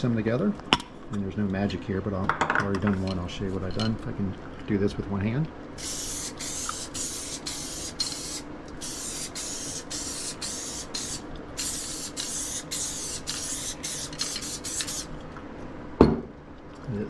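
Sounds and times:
aerosol can spraying in spurts: 0:05.8 - 0:15.1.

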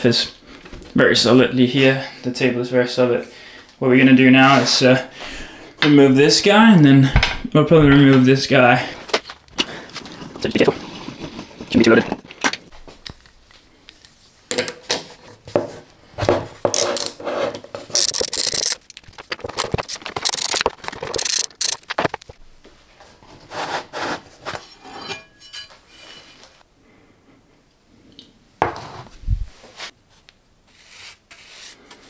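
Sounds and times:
scraping and rubbing: 0:09.9 - 0:12.3, 0:16.6 - 0:22.4
faint metallic rings: 0:24.9 - 0:26.4.

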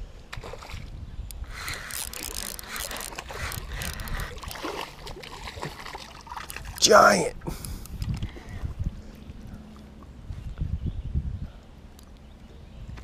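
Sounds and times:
sharp clicks: 0:01.3 - 0:04.2
fish splashing in water: 0:01.6 - 0:06.8.

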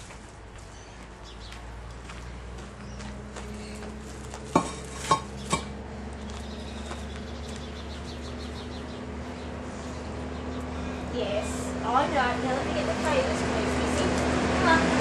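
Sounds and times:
concrete pavers clacking: 0:00.0 - 0:08.4.

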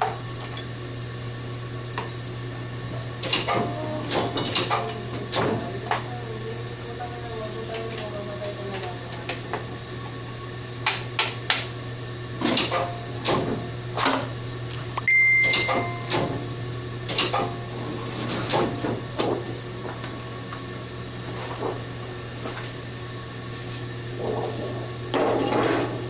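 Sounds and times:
steady low hum: 0:00.0 - 0:26.0
short high beep: 0:15.1 - 0:16.1.

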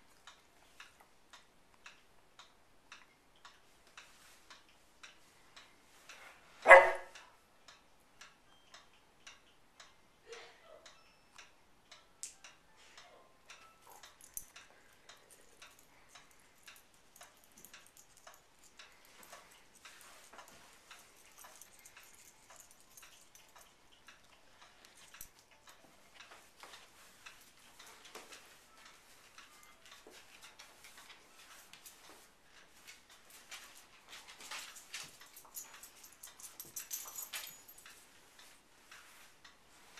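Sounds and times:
faint irregular clicking: 0:00.0 - 0:06.2, 0:07.2 - 0:10.0, 0:10.8 - 0:39.9.

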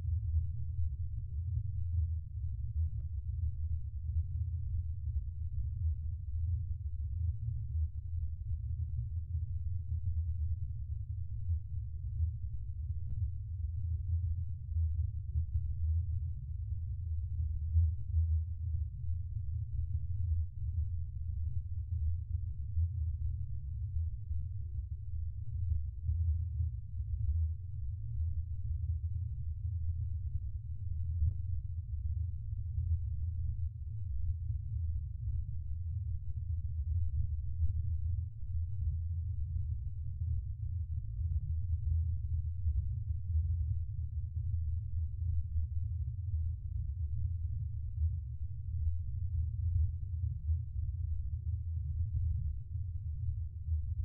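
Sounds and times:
deep steady hum: 0:00.0 - 0:54.0.

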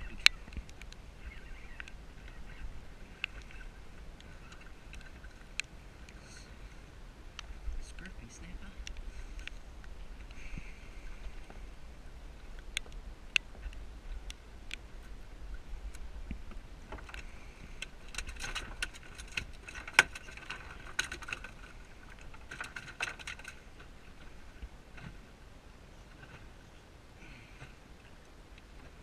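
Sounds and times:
fishing gear clicks and knocks: 0:16.9 - 0:24.3.

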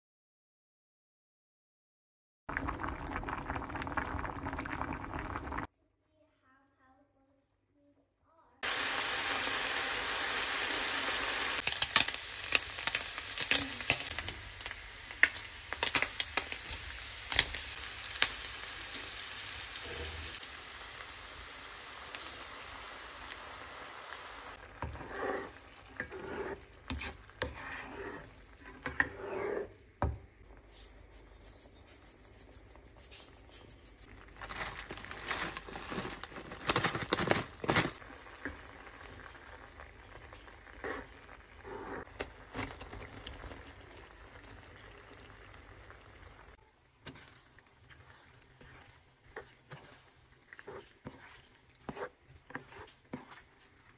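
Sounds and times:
bacon sizzling and popping: 0:08.6 - 0:27.6, 0:32.7 - 0:53.9
spatula scraping a pan: 0:24.6 - 0:34.1, 0:40.7 - 0:42.7, 0:47.0 - 0:53.9.

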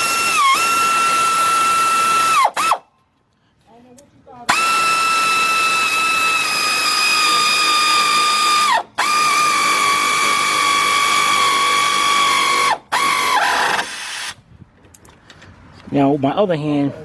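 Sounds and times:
power ratchet whine: 0:00.0 - 0:02.8, 0:04.5 - 0:14.4.

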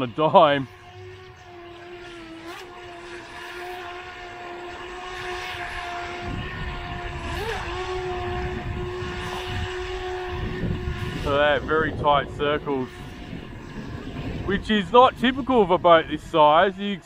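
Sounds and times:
low rumble: 0:00.0 - 0:16.7
electric motor whining: 0:00.0 - 0:17.0.

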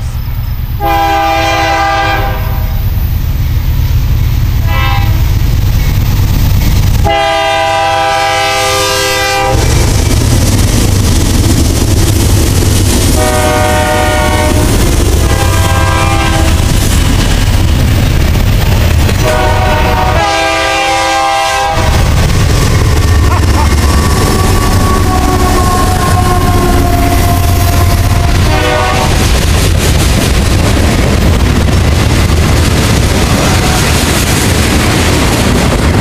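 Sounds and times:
train rumble and wheel clatter: 0:00.0 - 0:36.0
locomotive horn blasts: 0:00.8 - 0:02.8, 0:04.6 - 0:05.2, 0:07.0 - 0:09.7, 0:13.1 - 0:16.6, 0:19.2 - 0:22.1, 0:23.2 - 0:29.3, 0:33.4 - 0:34.0.

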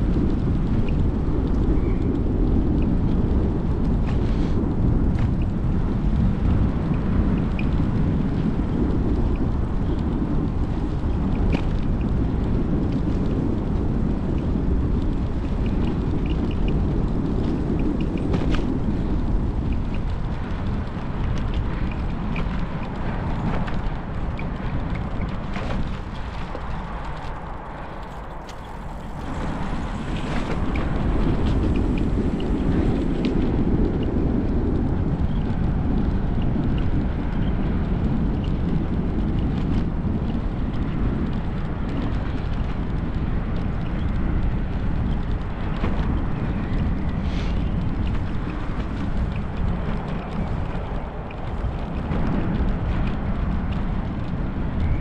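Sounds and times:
bicycle tyre noise on path: 0:00.0 - 0:55.0
wind buffeting microphone: 0:00.0 - 0:55.0.

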